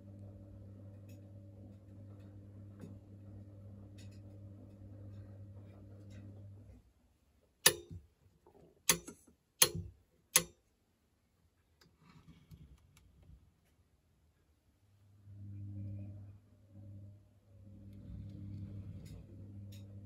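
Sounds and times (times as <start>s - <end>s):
sharp mechanical clicks: 8.9s - 10.5s
steady hum: 15.1s - 20.0s.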